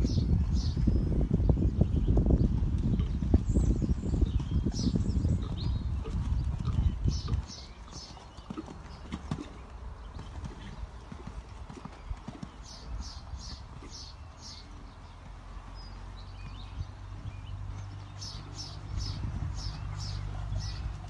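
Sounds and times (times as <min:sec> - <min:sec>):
horse hooves cantering on sand: 0:00.0 - 0:21.0.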